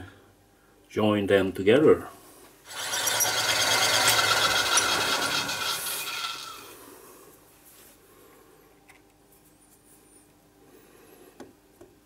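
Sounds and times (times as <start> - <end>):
metal lathe running: 2.7 - 6.7.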